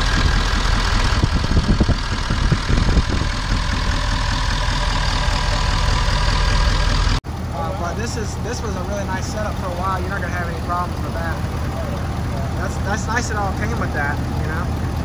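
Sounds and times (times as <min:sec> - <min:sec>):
low bumps: 0:00.0 - 0:07.2
diesel engine idling: 0:00.0 - 0:15.0.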